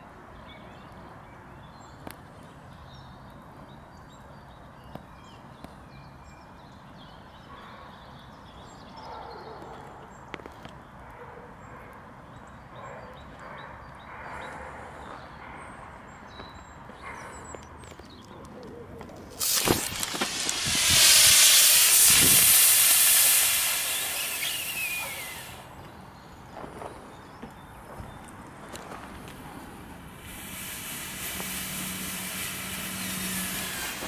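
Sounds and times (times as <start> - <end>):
battery venting loud hiss: 19.3 - 25.8, 30.0 - 34.0.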